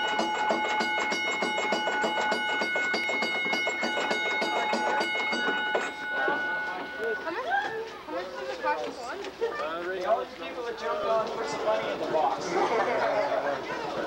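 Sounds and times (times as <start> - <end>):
bell ringing: 0.0 - 7.9.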